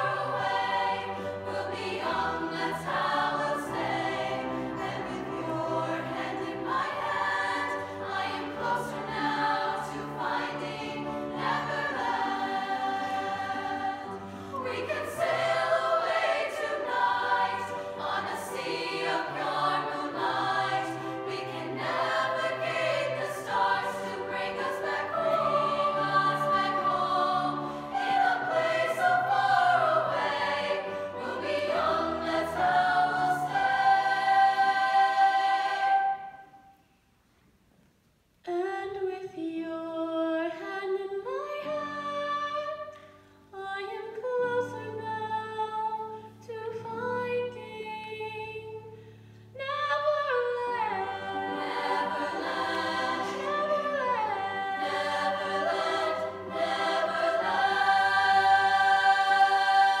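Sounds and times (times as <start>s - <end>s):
girls' choir singing: 0.0s - 36.8s, 50.0s - 60.0s.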